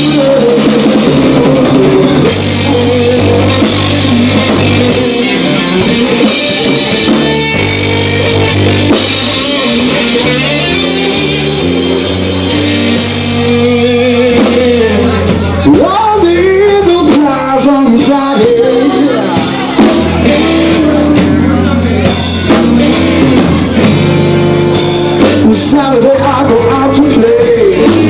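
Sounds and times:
live rock band playing: 0.0 - 28.0
sliding bending guitar notes: 0.0 - 28.0.

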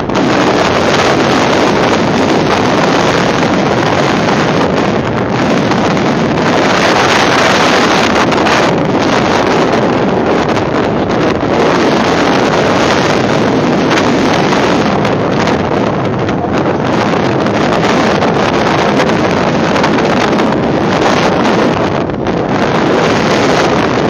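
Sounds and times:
strong wind buffeting microphone: 0.0 - 24.0.

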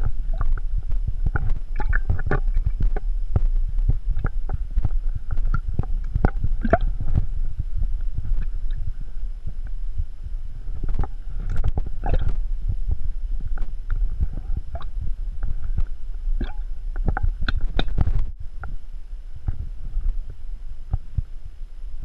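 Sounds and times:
low rumble: 0.0 - 22.0
water sloshing in bottle: 5.3 - 7.3.

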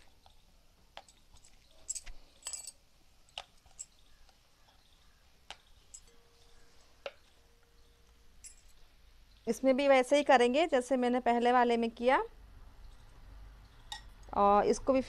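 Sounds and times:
bangles clinking: 1.0 - 8.9.

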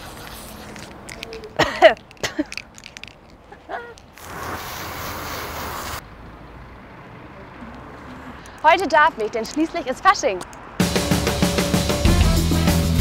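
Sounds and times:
rushing noise: 4.2 - 6.1.

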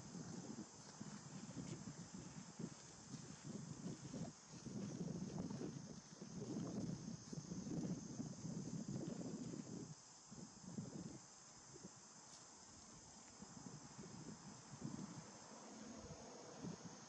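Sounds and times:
wind rumble on microphone: 0.0 - 12.1, 12.7 - 17.0
high-pitched insect drone: 0.0 - 17.0.

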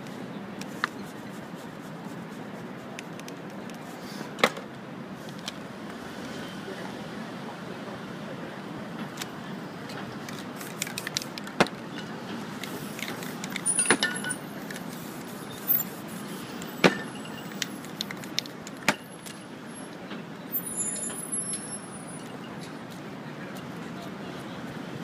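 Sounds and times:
city street traffic: 0.0 - 25.0
spray cans clicking and knocking: 10.2 - 11.9, 12.5 - 15.3, 16.6 - 19.4.

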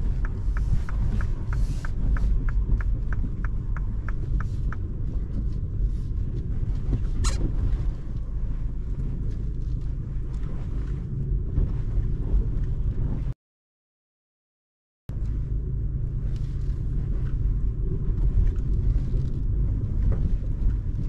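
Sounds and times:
car rumbling over dirt road: 0.0 - 13.4, 15.1 - 21.0
brief squeak: 7.2 - 7.5.

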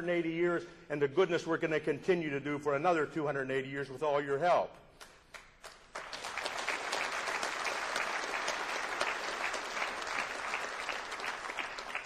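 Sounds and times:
audience applauding: 5.6 - 12.0.

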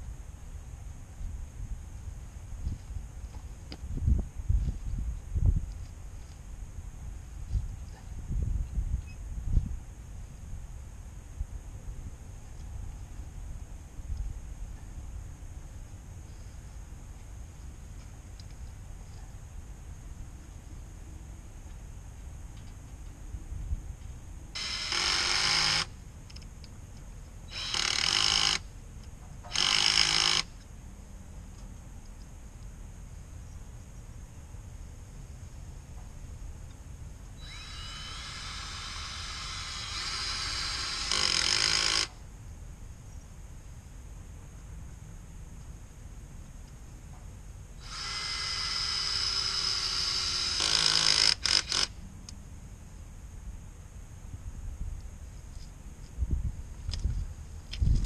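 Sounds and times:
cordless drill driving screws: 24.6 - 25.9, 27.5 - 28.6, 29.5 - 30.5, 37.4 - 42.2, 47.8 - 51.9.

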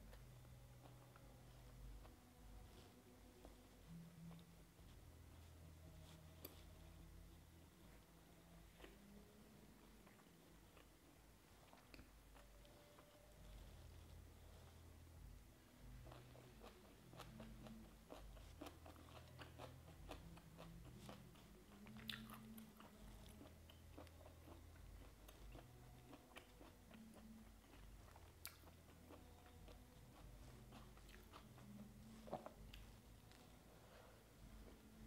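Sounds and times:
chewing and crunching: 15.8 - 33.8.

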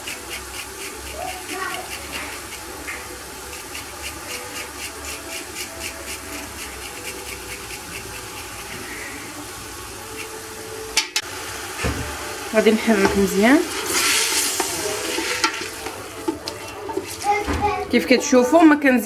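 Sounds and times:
garlic being grated: 0.0 - 11.0, 12.9 - 17.5
food sizzling in oil: 0.0 - 18.7.

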